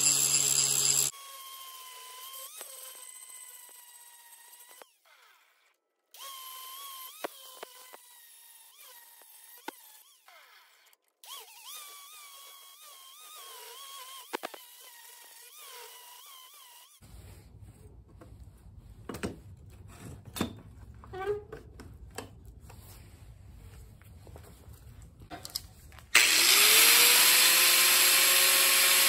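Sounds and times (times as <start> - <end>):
angle grinder grinding steel: 0.0 - 17.0, 26.1 - 29.0.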